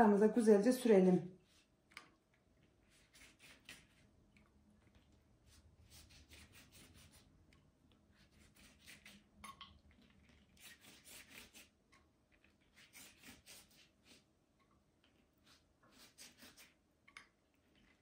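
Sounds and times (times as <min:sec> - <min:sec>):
pastry brush strokes on dough: 0:02.6 - 0:04.1, 0:05.3 - 0:07.4, 0:08.1 - 0:09.3, 0:10.3 - 0:11.8, 0:12.5 - 0:14.3, 0:15.2 - 0:16.8.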